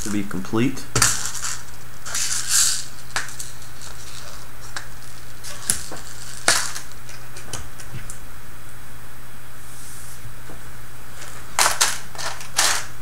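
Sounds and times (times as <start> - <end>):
plastic parts rattling: 1.0 - 4.4, 11.2 - 13.0.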